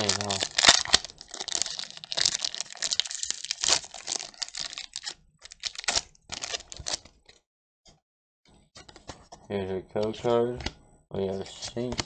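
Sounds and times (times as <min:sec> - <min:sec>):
cards rustling: 0:00.0 - 0:07.1
foil wrapper crinkling and tearing: 0:00.0 - 0:07.2.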